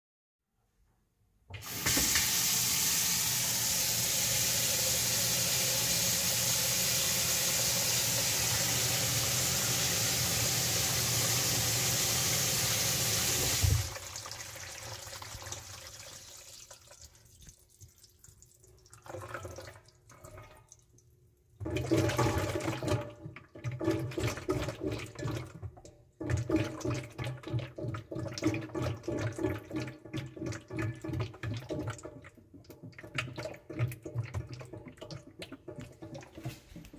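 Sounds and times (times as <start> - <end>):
water rushing down sink drain: 1.6 - 17.4, 21.6 - 36.9
gurgling in pipes: 21.6 - 36.9.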